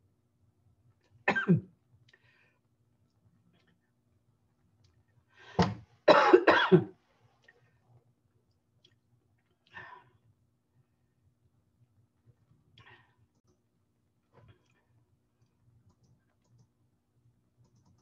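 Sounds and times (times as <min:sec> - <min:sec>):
woman coughing: 0:01.3 - 0:01.7, 0:06.1 - 0:07.0.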